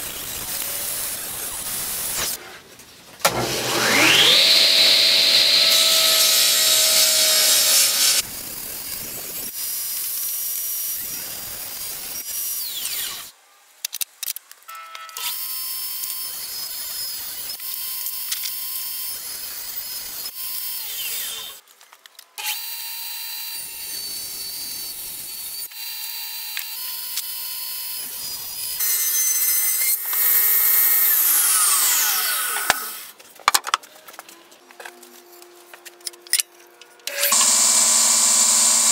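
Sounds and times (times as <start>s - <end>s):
saw blade cutting wood: 0.0s - 2.5s, 3.2s - 13.3s, 23.6s - 33.2s, 37.0s - 38.9s
table saw motor whine: 3.3s - 8.2s, 22.5s - 33.1s, 37.1s - 38.9s.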